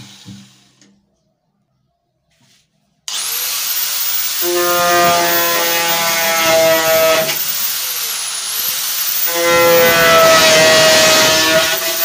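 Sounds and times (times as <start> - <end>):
angle grinder whine: 3.1 - 12.0.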